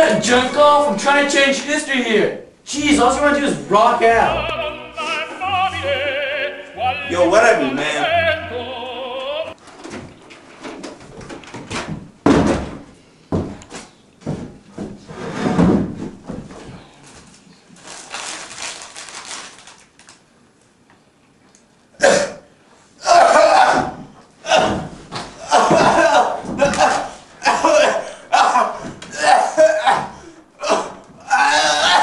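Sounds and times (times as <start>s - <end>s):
plastic bag crinkling: 17.7s - 20.3s.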